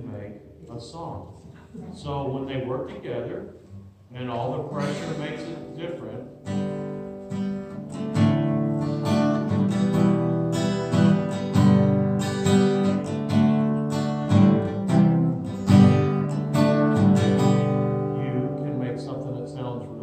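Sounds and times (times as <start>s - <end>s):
acoustic guitar strumming: 4.5s - 20.0s.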